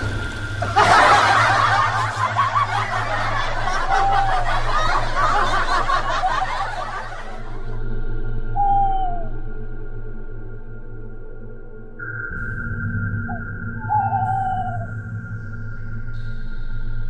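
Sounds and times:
steady low hum: 0.0s - 17.0s
people laughing: 0.6s - 7.8s.

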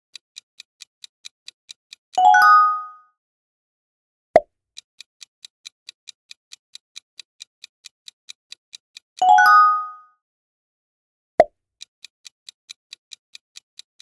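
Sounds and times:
clock-like ticks: 0.0s - 2.5s, 4.7s - 9.6s, 11.8s - 14.0s
bright chime: 2.2s - 3.0s, 9.2s - 10.0s.

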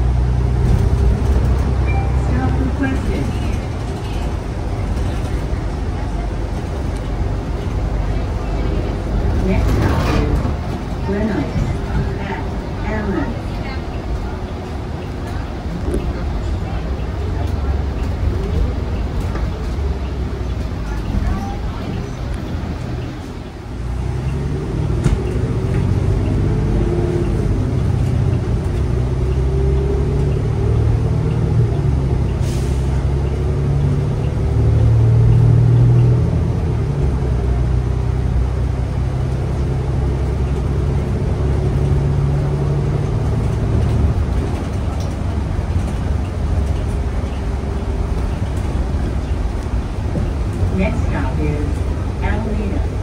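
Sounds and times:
bus engine droning: 0.0s - 53.0s.

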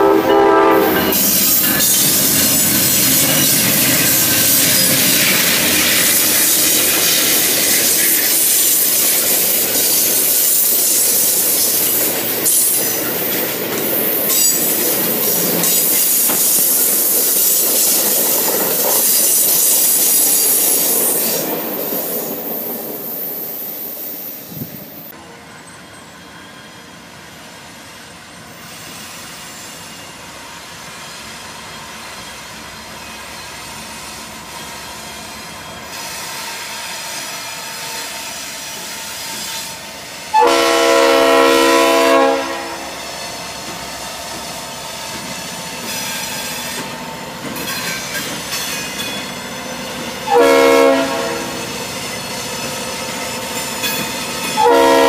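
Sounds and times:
locomotive air horn: 0.0s - 5.4s, 40.3s - 43.0s, 50.3s - 51.6s, 54.6s - 55.0s
passenger train departing: 0.0s - 55.0s
train rumble and wheel noise: 0.0s - 55.0s.

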